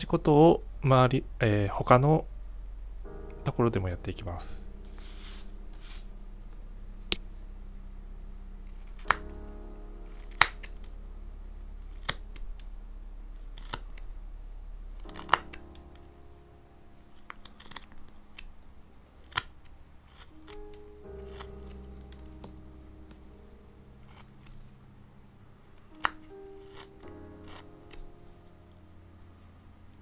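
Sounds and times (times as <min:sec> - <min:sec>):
soft background music: 0:00.0 - 0:30.0
knife cutting wood chips: 0:13.6 - 0:13.9, 0:15.0 - 0:15.6, 0:25.8 - 0:28.1.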